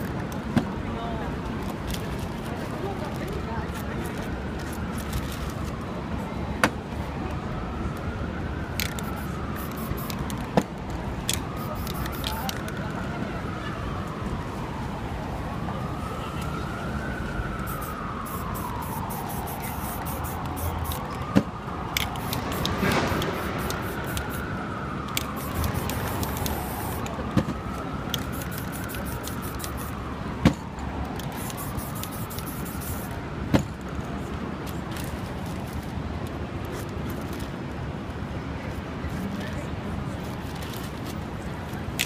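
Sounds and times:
street traffic: 0.0 - 42.0
distant emergency siren wailing: 2.1 - 35.1
spray-paint can hissing: 8.9 - 10.2, 17.7 - 21.0, 22.0 - 24.4, 25.3 - 27.0, 28.2 - 29.9, 31.3 - 33.1.

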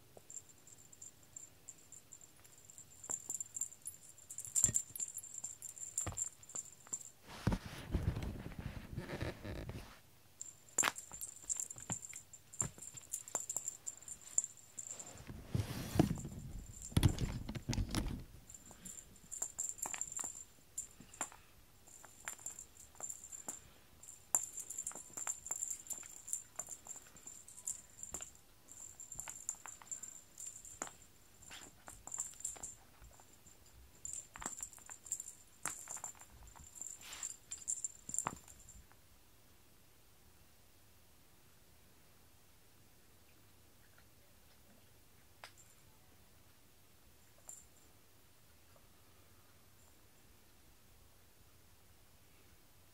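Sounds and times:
cat toy rustling on foam mat: 7.2 - 10.0, 11.0 - 18.6, 35.8 - 38.5.

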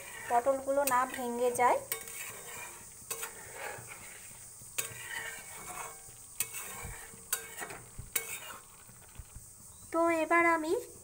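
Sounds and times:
light sizzle: 0.0 - 11.0
spatula clinking against pan: 1.8 - 3.4, 4.8 - 8.6.

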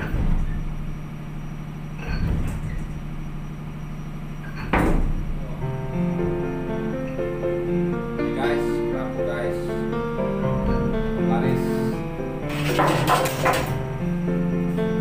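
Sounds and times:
steady low hum: 0.0 - 15.0
background music: 5.7 - 15.0
handling knocks and bumps: 12.5 - 13.8.

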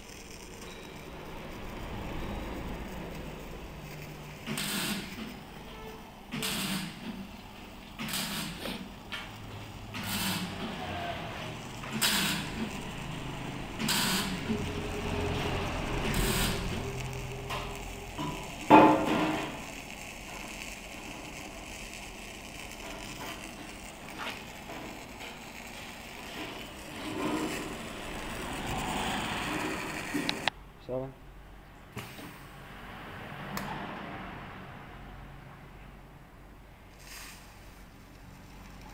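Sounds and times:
welding carriage rattling: 0.0 - 30.5
loud mechanical knock: 18.2 - 19.6
short hisses: 36.9 - 37.8.

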